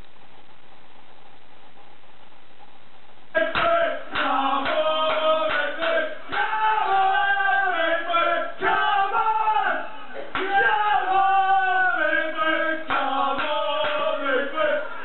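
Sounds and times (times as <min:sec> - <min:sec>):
faint steady hiss: 0:00.0 - 0:15.0
men singing with music: 0:03.4 - 0:15.0.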